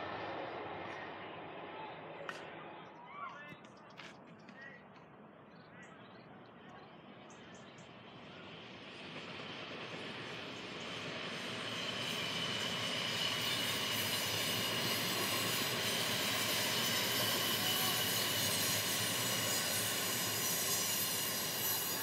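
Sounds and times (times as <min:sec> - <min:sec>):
electric train passing: 0:00.0 - 0:02.8, 0:07.6 - 0:22.0.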